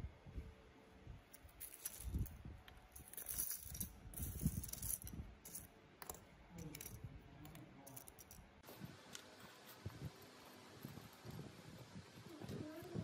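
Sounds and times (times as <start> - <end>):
plastic keycaps rattling and clicking: 7.9 - 8.4.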